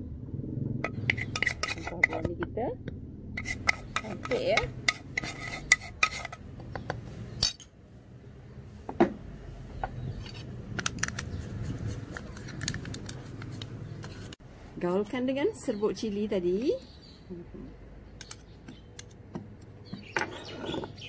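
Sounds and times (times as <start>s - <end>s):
metal spoon clinking in ceramic bowl: 7.4s - 7.8s.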